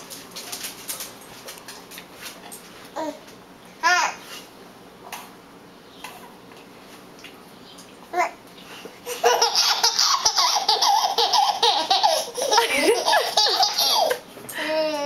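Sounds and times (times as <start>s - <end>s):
toddler laughing: 9.0s - 15.0s.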